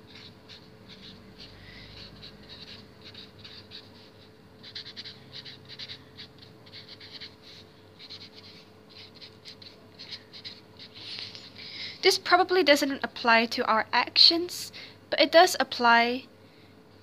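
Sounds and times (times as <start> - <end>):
marker writing on paper: 0.0 - 11.5.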